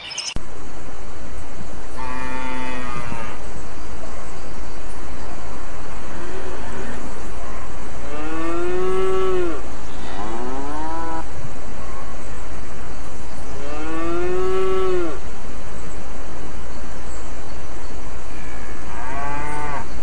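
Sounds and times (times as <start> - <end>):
steady hiss: 0.0 - 20.0.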